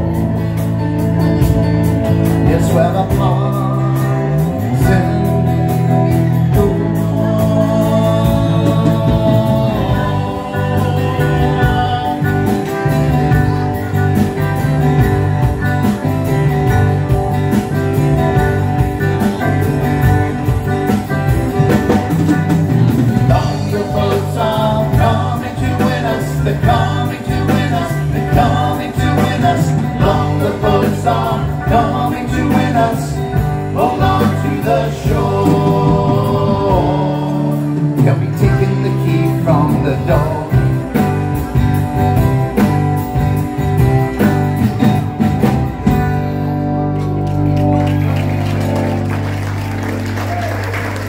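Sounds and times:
live band playing: 0.0 - 51.0
voices singing: 2.1 - 42.3.

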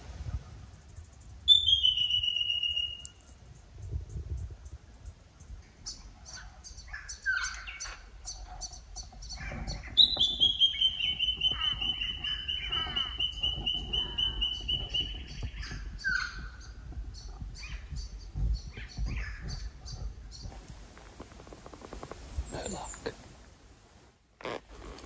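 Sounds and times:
birds chirping: 1.1 - 3.4, 5.4 - 25.0
loud fast bird trill: 1.5 - 3.1.

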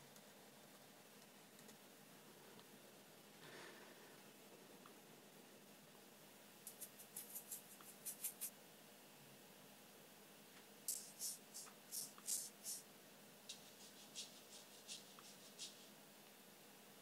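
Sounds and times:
shaker shakes: 6.6 - 8.5, 10.9 - 12.8, 13.5 - 16.0.

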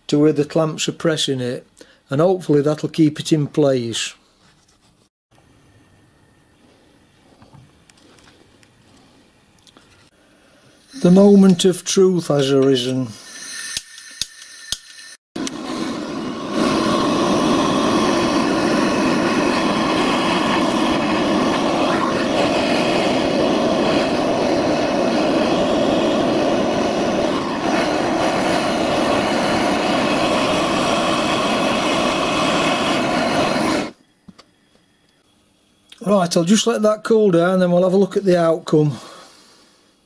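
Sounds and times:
blowtorch burning: 12.4 - 34.0.

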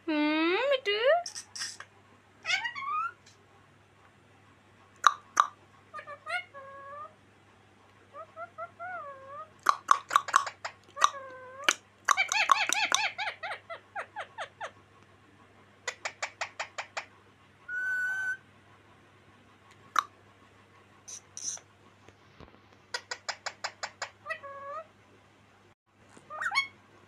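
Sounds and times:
parakeet calling: 1.2 - 3.2, 5.1 - 7.1, 8.1 - 14.8, 15.9 - 17.1, 21.1 - 21.6, 26.3 - 26.8
parakeet whistle: 17.7 - 18.4.

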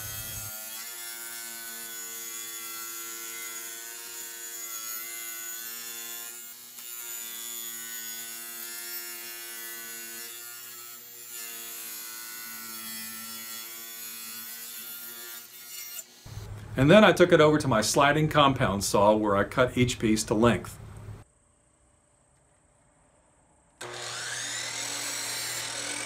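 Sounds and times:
table saw cutting wood: 0.0 - 16.5, 23.8 - 26.0.

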